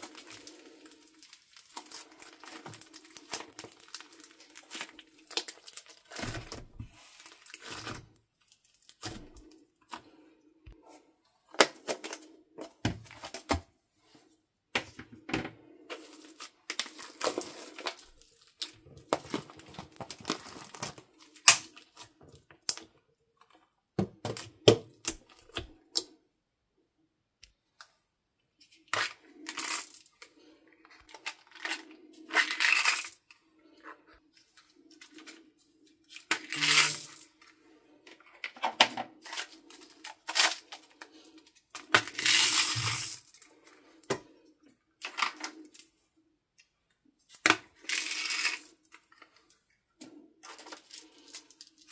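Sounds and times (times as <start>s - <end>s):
slime squishing and crackling: 0.0s - 9.6s, 15.9s - 22.9s
plastic containers and beads clinking: 0.0s - 10.0s, 15.2s - 25.8s, 28.6s - 46.0s, 47.2s - 51.9s.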